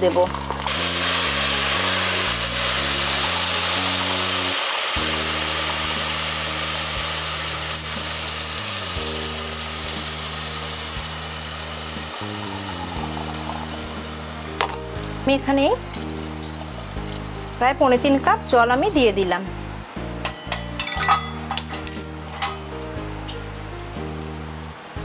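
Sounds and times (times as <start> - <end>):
water hissing in hot oil: 0.0 - 18.9
background music with bass notes: 0.0 - 25.0.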